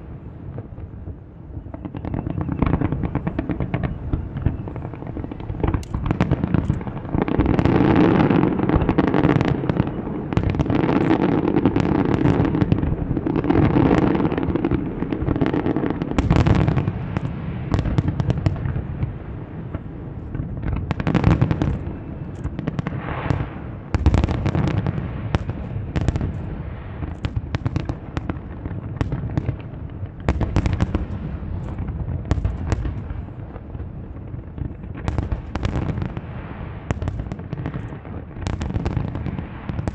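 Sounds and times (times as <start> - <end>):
fireworks crackling: 0.0 - 39.9
firework shells bursting: 1.8 - 9.7.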